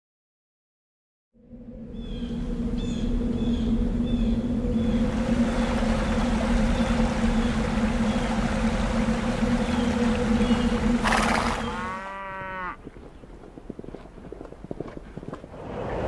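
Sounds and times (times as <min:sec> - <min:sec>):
low steady hum: 0:01.4 - 0:16.0
cow lowing: 0:11.0 - 0:14.2.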